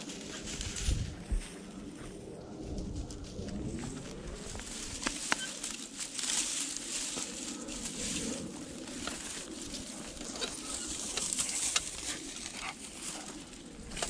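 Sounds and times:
dry grass rustling and crackling: 0.0s - 14.0s.

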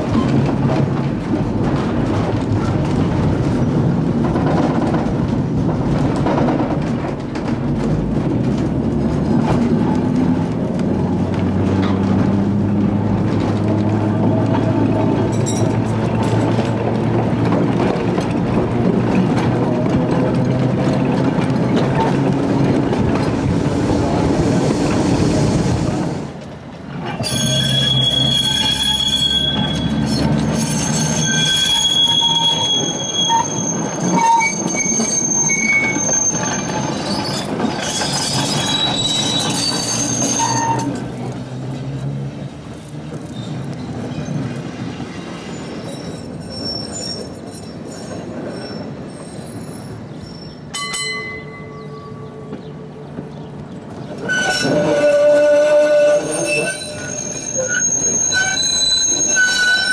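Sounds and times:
low tram rumble: 0.0s - 59.9s
tram wheels squealing on rails: 13.5s - 26.3s, 26.9s - 42.2s, 42.8s - 59.9s.

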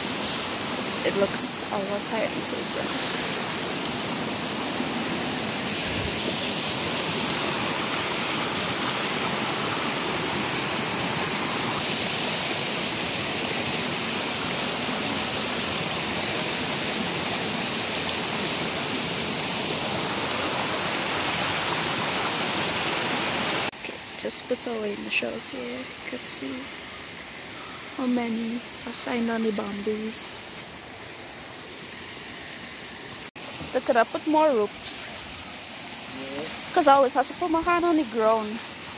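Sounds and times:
stream rushing over rocks: 0.0s - 23.8s.

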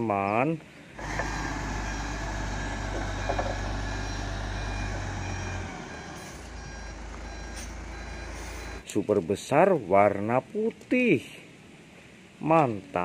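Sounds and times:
truck engine running: 1.0s - 8.8s
reversing alarm beeping: 1.2s - 8.8s.

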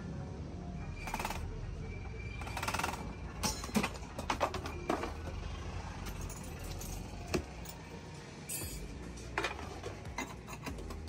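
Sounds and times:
faint background music: 0.0s - 11.0s
metallic clinks of burner parts: 6.0s - 11.0s.

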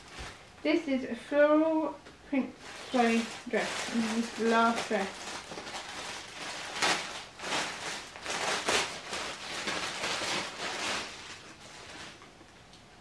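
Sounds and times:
plastic bag crinkling: 2.5s - 12.6s.

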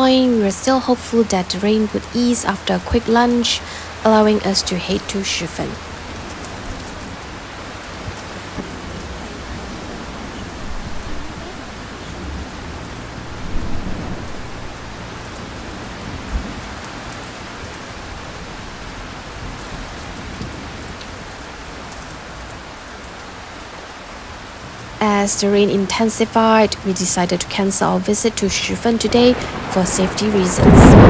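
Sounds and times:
low rumbles: 0.0s - 21.0s
heavy rain pouring: 0.0s - 31.0s.

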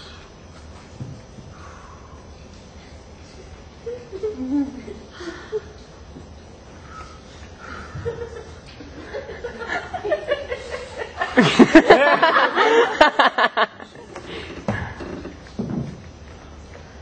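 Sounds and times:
person laughing loudly: 3.8s - 5.8s, 9.1s - 13.9s
quieter laughs: 3.8s - 5.9s, 7.7s - 14.1s.

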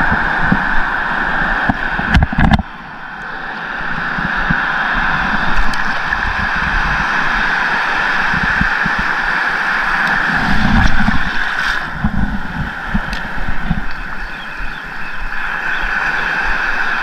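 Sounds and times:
wind on microphone: 0.0s - 17.0s
water sloshing and splashing: 3.9s - 14.2s.

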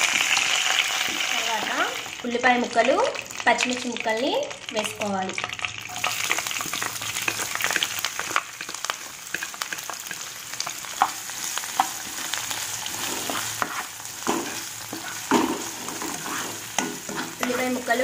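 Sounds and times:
onions sizzling in hot oil: 0.0s - 18.0s
spatula scraping and tapping pan: 6.0s - 18.0s.

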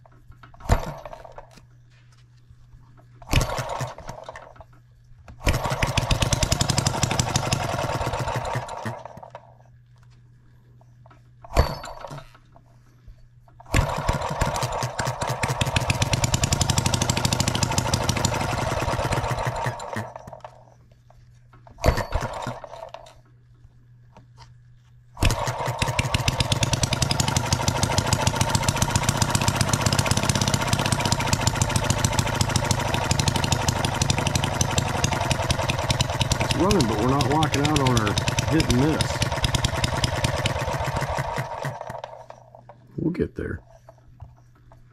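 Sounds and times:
engine sputter: 0.0s - 1.6s, 3.2s - 4.8s, 5.4s - 9.6s, 13.6s - 20.8s, 21.7s - 23.2s, 25.2s - 43.0s
model engine running: 5.4s - 9.5s, 13.7s - 20.6s, 25.2s - 42.7s.

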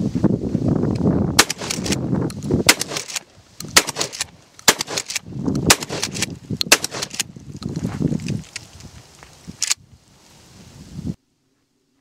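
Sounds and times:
shotgun shots: 1.4s - 2.0s, 2.6s - 7.2s
spent shell ejecting: 1.4s - 7.3s.

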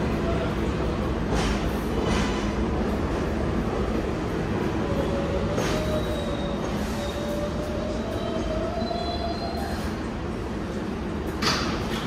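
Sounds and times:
subway train rumble and whine: 0.0s - 12.0s.

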